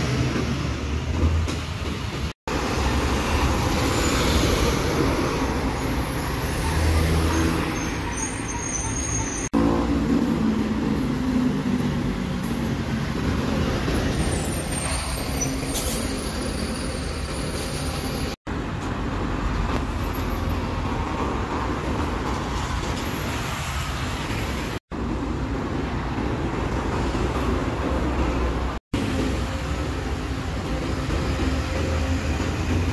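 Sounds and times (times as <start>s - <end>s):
diesel buses passing: 0.0s - 32.9s
steady traffic noise: 0.0s - 32.9s.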